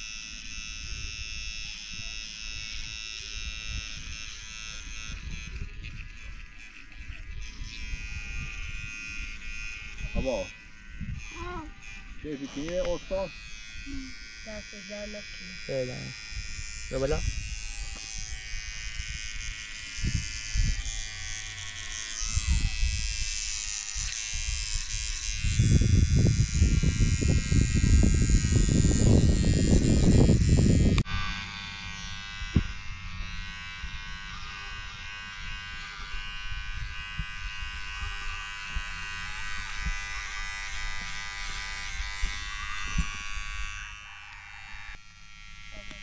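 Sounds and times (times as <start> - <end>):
electric hair clippers buzzing: 0.0 - 46.0.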